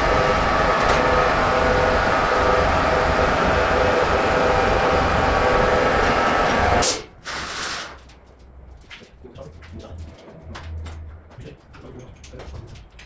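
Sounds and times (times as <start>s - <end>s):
air compressor whining: 0.0s - 7.9s.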